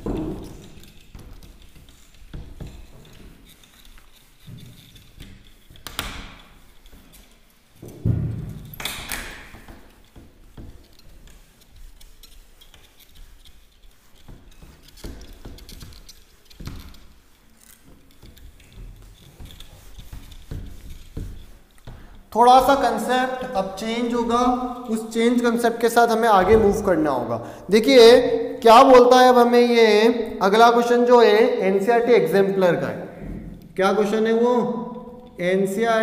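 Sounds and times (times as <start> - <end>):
duster rubbing whiteboard: 0.0 - 32.7
dull thump: 7.8 - 9.4.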